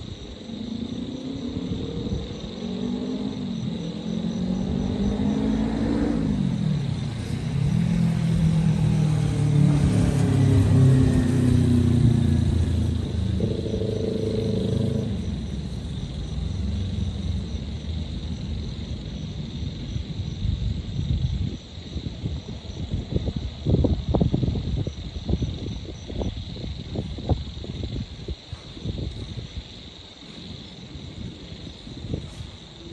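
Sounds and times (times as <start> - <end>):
low traffic rumble: 0.0 - 32.9
passing vehicle engines: 1.4 - 21.2.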